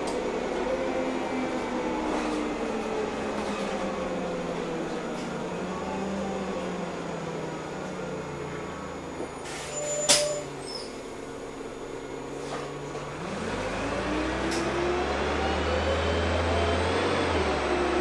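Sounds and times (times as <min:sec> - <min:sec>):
bus engine: 0:00.0 - 0:18.0
air brake hiss: 0:09.4 - 0:10.8.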